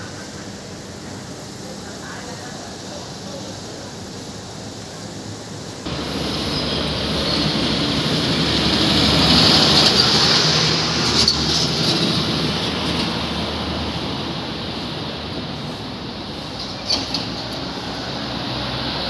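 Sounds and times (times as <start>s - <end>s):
vehicle passing: 5.9s - 15.1s.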